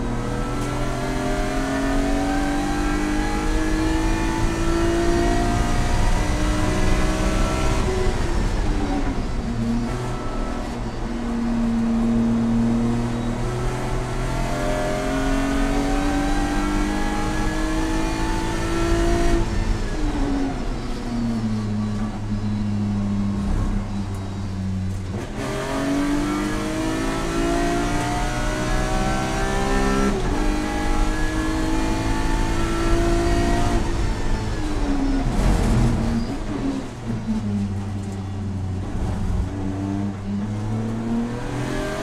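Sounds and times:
car engine revving: 0:00.0 - 0:42.0.

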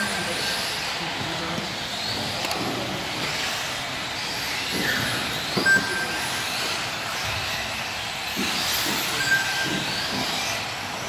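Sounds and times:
electric motors whining: 0:00.0 - 0:11.0
short high beep: 0:09.2 - 0:09.6.

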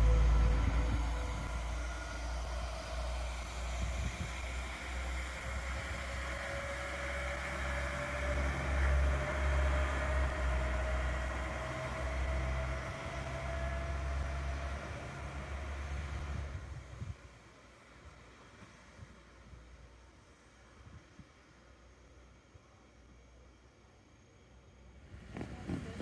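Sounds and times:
low rumble: 0:00.0 - 0:17.3
diesel railcar engine whine: 0:00.0 - 0:26.0.

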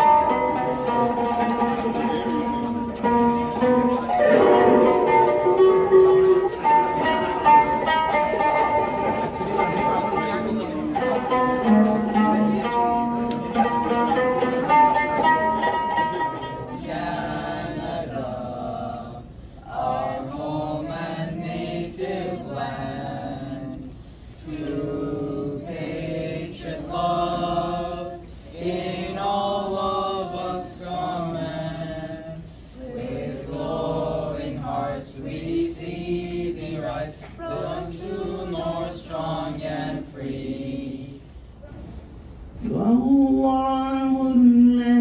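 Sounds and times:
children singing a cappella: 0:16.6 - 0:41.3.

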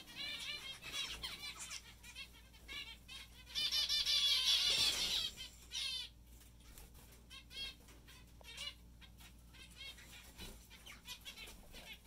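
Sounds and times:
finches calling: 0:00.0 - 0:06.2.

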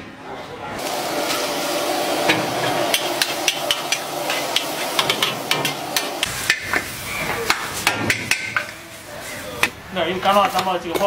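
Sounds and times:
frying sizzle: 0:00.8 - 0:09.6.

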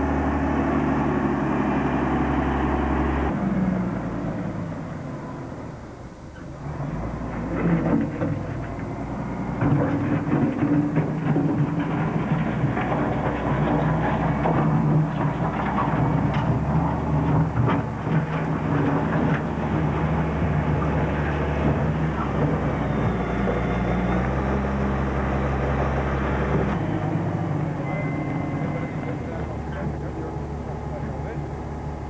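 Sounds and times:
heavy engine running: 0:00.0 - 0:32.0.

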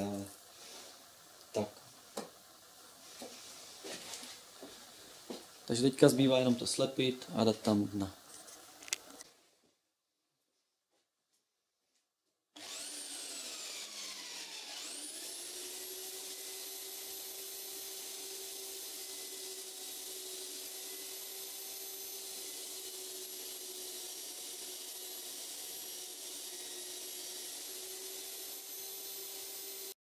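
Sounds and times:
belt sander whining: 0:12.6 - 0:30.0.

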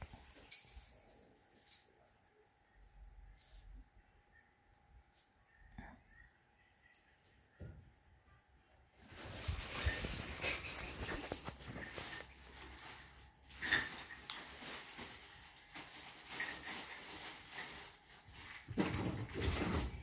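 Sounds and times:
rustling on bedding: 0:09.0 - 0:18.7.

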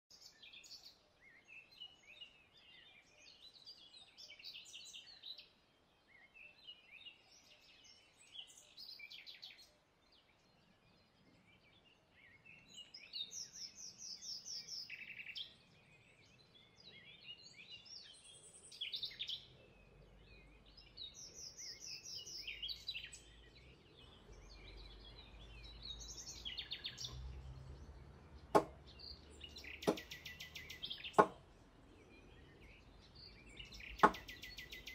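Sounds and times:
birds chirping: 0:00.1 - 0:34.9
knife chopping on wooden board: 0:28.6 - 0:28.8, 0:29.8 - 0:30.1, 0:31.2 - 0:31.4, 0:34.0 - 0:34.2.

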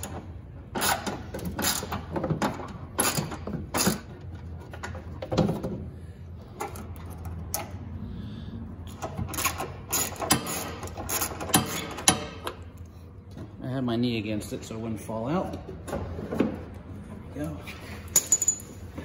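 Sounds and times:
hand ratchet clicking: 0:00.0 - 0:02.1, 0:08.9 - 0:12.6.

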